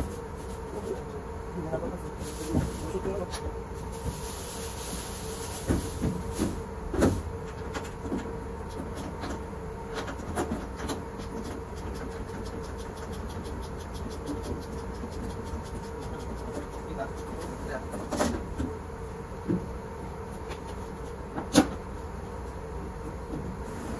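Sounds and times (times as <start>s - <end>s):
laundry machinery hum: 0.0s - 23.9s.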